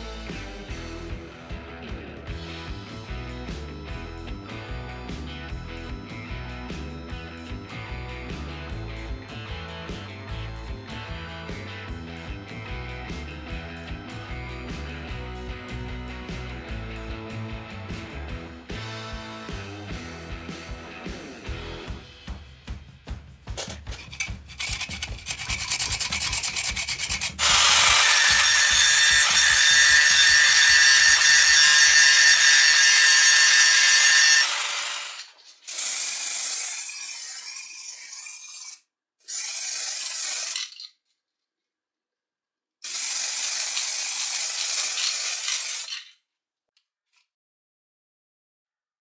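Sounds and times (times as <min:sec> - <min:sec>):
spray can spraying on steel: 0:23.6 - 0:27.4, 0:39.3 - 0:40.9, 0:42.8 - 0:46.1.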